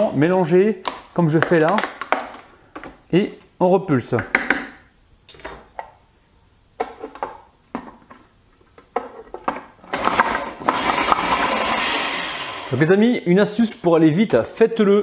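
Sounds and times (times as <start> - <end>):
food processor churning: 9.9 - 12.8.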